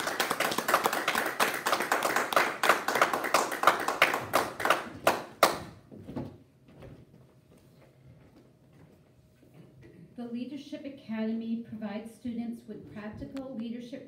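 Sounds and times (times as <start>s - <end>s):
people clapping: 0.0s - 5.8s
faint footsteps: 5.8s - 9.9s.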